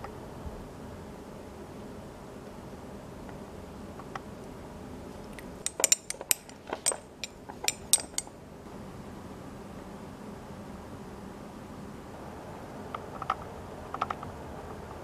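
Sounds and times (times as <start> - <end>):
chopsticks clinking on ceramic: 5.6 - 8.3.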